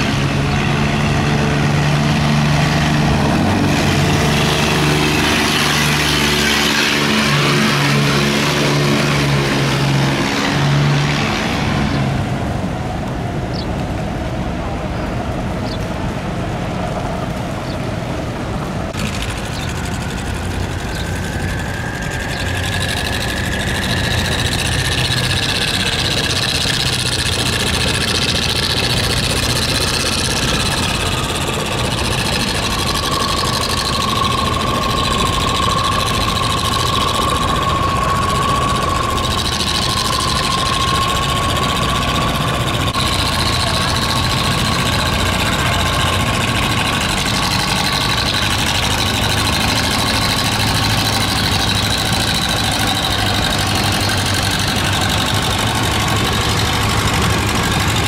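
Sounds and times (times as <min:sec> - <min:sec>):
boat engine humming: 0:00.0 - 0:58.0
high whine dropping in pitch: 0:18.9 - 0:58.0.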